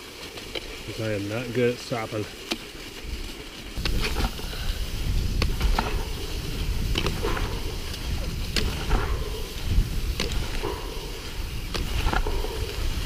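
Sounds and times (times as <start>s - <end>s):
skis clicking on crusty snow: 0.0s - 13.0s
skis hissing over snow: 0.0s - 13.0s
wind rushing over microphone: 3.8s - 13.0s.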